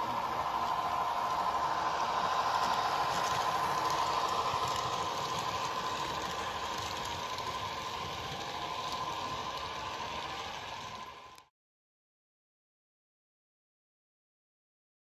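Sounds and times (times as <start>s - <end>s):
model train running hum: 0.0s - 11.5s.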